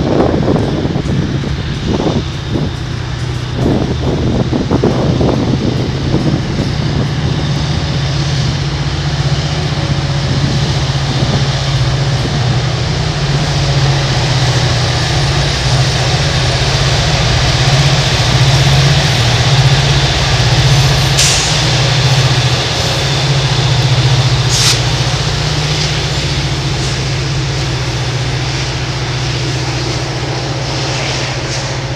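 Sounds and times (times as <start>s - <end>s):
diesel locomotive engines droning: 0.0s - 31.9s
train rolling past: 0.0s - 31.9s
sharp hisses: 13.0s - 31.9s.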